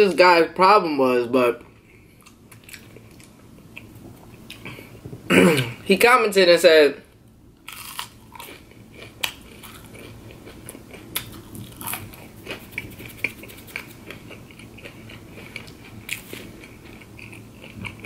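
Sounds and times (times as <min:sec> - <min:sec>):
chewing crispy food: 0:02.1 - 0:04.9, 0:07.6 - 0:18.0.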